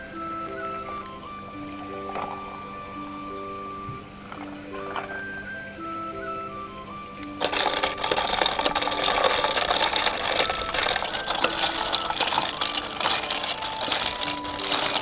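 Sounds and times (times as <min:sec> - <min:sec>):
faint background music: 0:00.0 - 0:15.0
soda water fizzing over ice: 0:00.0 - 0:15.0
spoon clinking ice in glass: 0:07.4 - 0:15.0.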